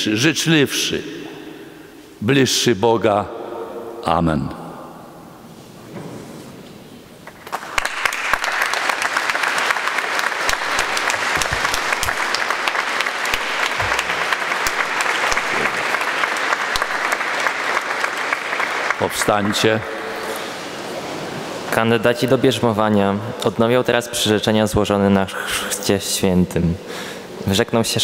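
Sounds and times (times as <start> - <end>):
crowd applauding: 7.2 - 21.6.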